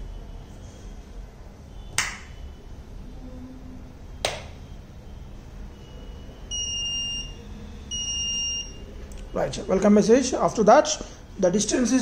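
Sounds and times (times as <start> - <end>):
high steady electronic beep: 4.1 - 10.3.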